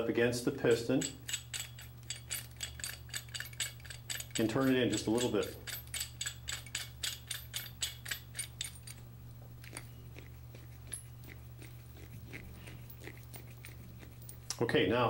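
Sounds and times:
hand ratchet clicking: 0.7 - 9.0.

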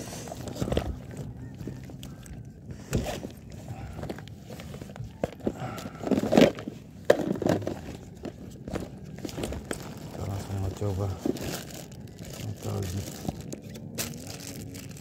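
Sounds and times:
plastic bag rustling: 3.1 - 15.0.

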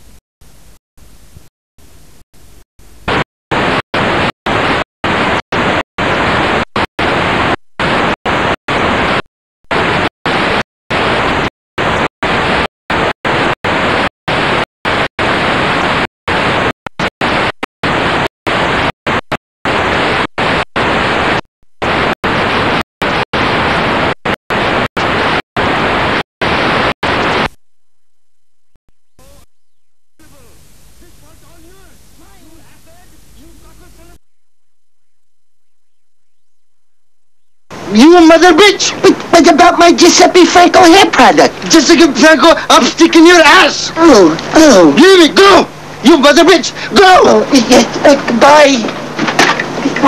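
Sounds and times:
loud static hiss: 0.0 - 27.6, 29.1 - 34.4, 37.4 - 50.0
faint hiss: 30.2 - 34.2.

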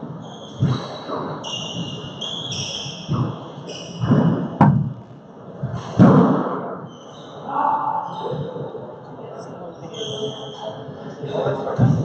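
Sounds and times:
sneakers squeaking on hardwood: 0.2 - 4.8.

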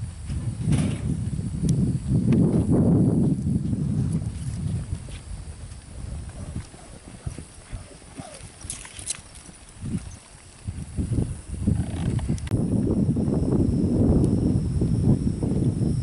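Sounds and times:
hoofbeats on soft dirt: 2.5 - 12.4.

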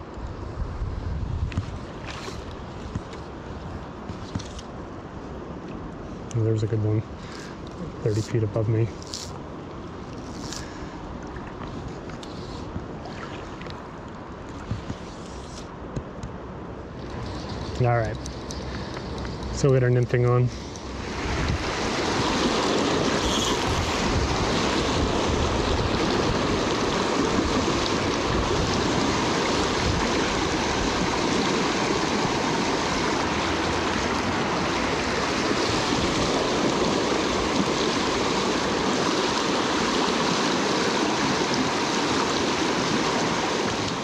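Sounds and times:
water rushing over rocks: 16.9 - 44.0.

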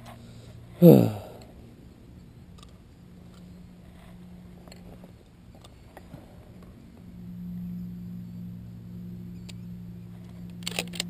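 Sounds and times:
faint clicks of gear handled: 2.5 - 6.8, 10.2 - 11.0.

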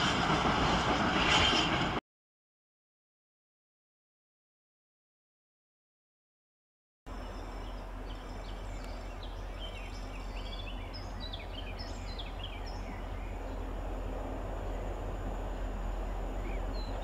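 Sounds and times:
birds chirping: 7.1 - 17.0
steady low rumble: 7.1 - 17.0.

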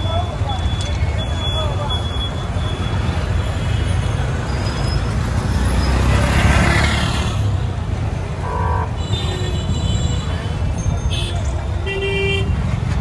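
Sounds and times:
traffic engine rumble: 0.0 - 13.0.

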